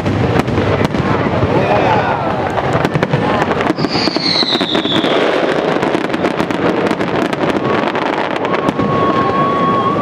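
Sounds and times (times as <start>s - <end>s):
fireworks bangs and crackling: 0.0s - 10.0s
steady whistle: 3.8s - 5.3s.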